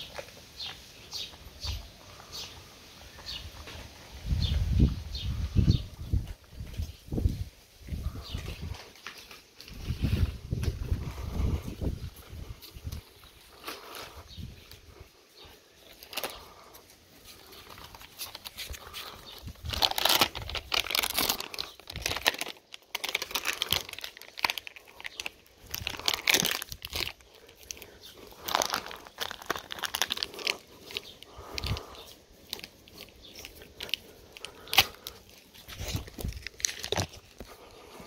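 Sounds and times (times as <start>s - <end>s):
plastic packet crinkling: 15.8s - 16.6s, 17.4s - 37.9s.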